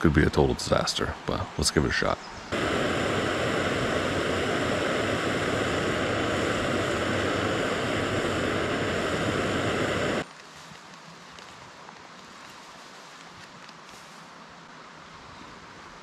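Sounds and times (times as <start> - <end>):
gas stove burner hissing: 2.5 - 10.3.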